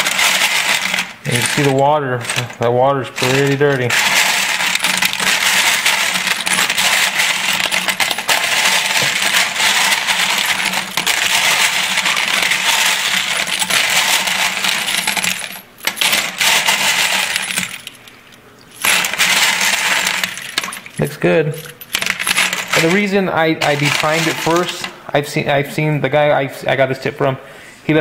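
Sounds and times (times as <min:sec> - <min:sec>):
brass cartridge cases clinking in water: 0:03.2 - 0:24.7.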